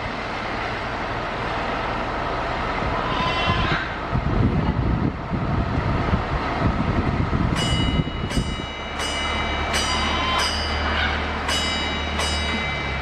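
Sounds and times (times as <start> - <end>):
low rumble: 1.8 - 13.0
small bell ringing: 7.6 - 13.0.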